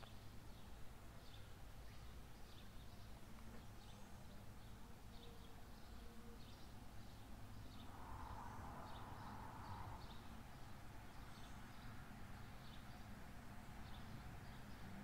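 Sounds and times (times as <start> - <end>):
small birds chirping: 0.0 - 15.0
low steady rumble: 7.0 - 15.0.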